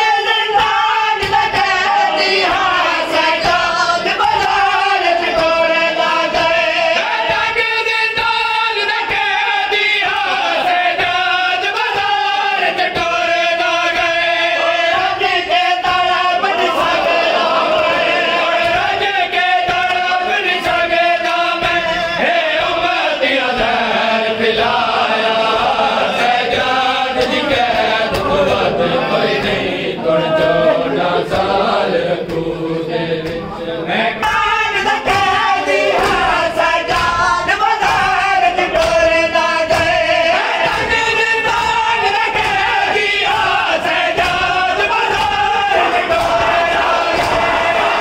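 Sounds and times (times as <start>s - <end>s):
lead reciter singing: 0.0s - 48.0s
men singing in unison: 0.0s - 48.0s
hands slapping chests: 24.6s - 29.6s, 34.2s - 48.0s.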